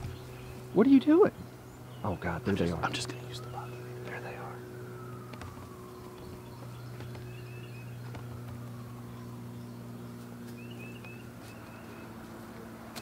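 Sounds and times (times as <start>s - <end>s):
faint whine: 0.0s - 13.0s
machine humming: 0.0s - 13.0s
faint bird chirps: 5.8s - 12.2s.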